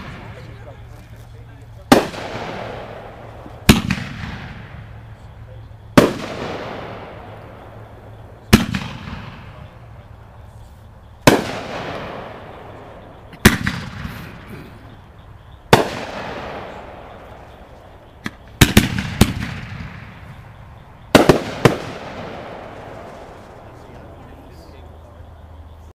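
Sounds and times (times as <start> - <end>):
firework bangs: 0.0 - 25.2
firework crackling: 0.0 - 25.2.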